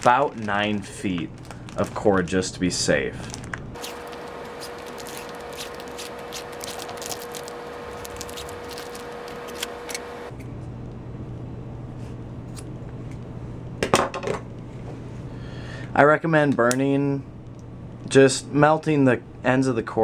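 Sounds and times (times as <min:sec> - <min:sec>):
cord rustling and ticking: 0:00.0 - 0:10.1.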